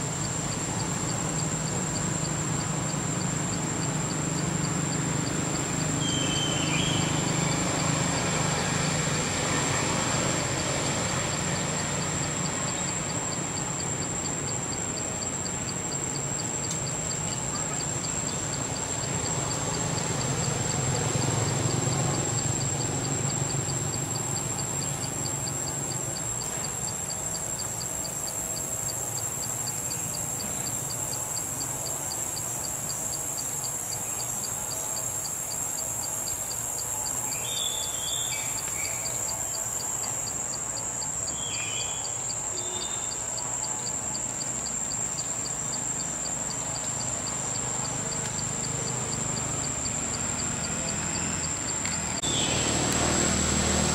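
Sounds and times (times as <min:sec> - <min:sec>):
insects whining and chirping: 0:00.0 - 0:53.9
short insect chirps: 0:00.0 - 0:53.9.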